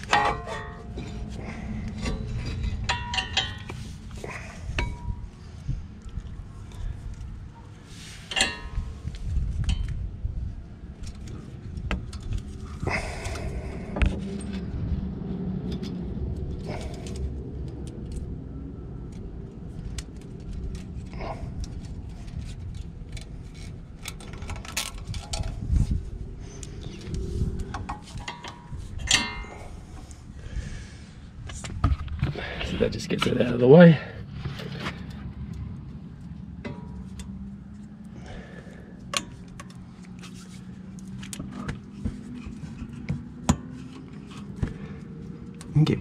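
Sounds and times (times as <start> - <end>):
metallic clinks and rattles: 0.0 - 5.3
low steady rumble: 0.0 - 46.0.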